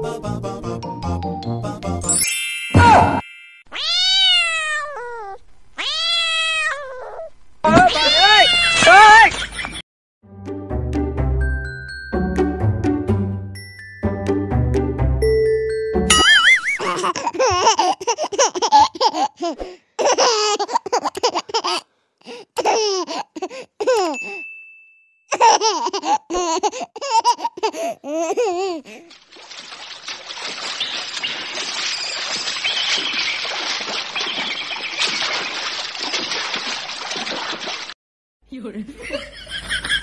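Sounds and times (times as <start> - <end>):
baby laughing and babbling: 16.6 - 24.4, 25.3 - 29.1
steady ding: 24.2 - 25.2.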